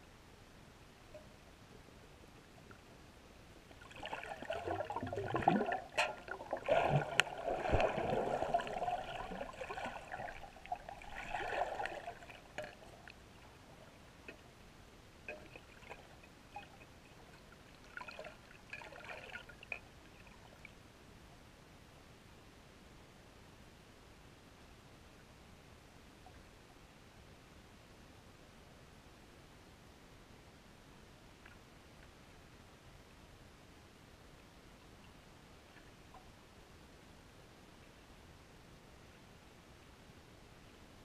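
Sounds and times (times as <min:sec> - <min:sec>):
water gurgling underwater: 0:03.8 - 0:12.8.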